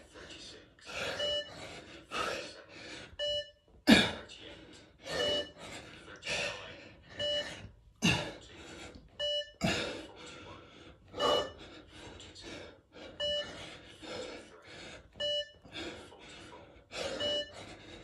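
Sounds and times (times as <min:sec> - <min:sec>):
man breathing heavily: 0:00.0 - 0:18.0
electronic bleeps: 0:05.2 - 0:05.5, 0:07.2 - 0:07.4, 0:17.2 - 0:17.5.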